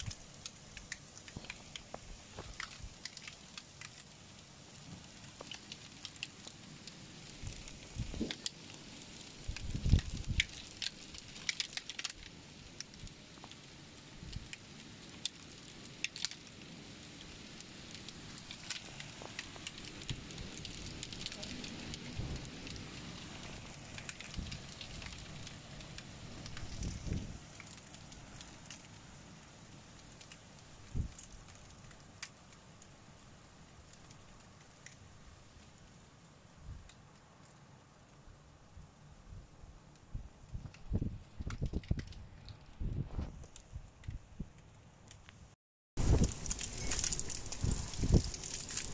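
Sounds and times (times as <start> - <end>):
hailstones ticking on window: 0.0 - 38.4, 39.8 - 44.6, 46.0 - 48.9
hail and rain hissing: 0.0 - 44.2, 46.0 - 48.9.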